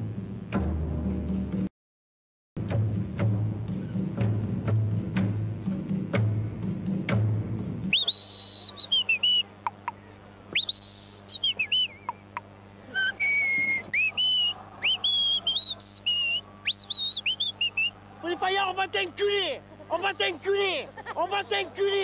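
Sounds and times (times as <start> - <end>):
music: 0.0 - 1.7, 2.6 - 8.0
man whistling through fingers: 7.9 - 9.5, 10.6 - 12.2, 12.9 - 18.0.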